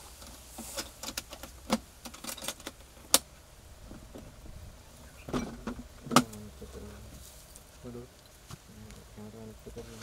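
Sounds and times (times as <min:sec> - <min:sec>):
small items clicking and clattering: 0:00.2 - 0:02.8.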